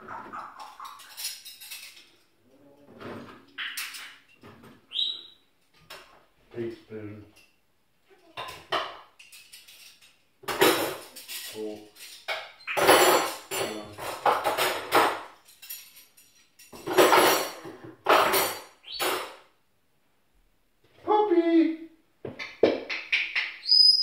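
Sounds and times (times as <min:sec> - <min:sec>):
dishes and cutlery clattering: 0:00.0 - 0:04.9, 0:07.3 - 0:19.5.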